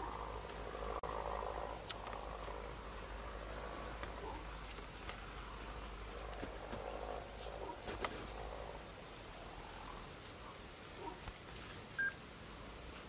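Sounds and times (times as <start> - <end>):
insect trilling: 0.0 - 12.8.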